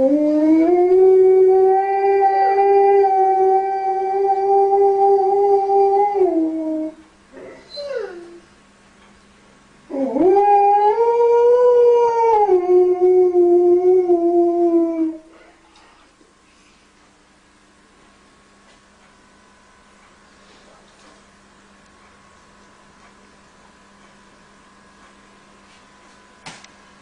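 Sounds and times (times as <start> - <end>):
husky howling: 0.0 - 8.4, 9.9 - 15.3.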